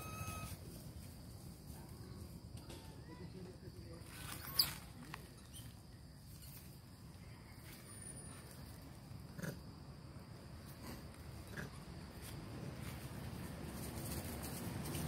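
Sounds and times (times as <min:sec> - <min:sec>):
low outdoor rumble: 0:06.7 - 0:15.0
monkey grunts: 0:09.4 - 0:09.6, 0:10.9 - 0:11.8.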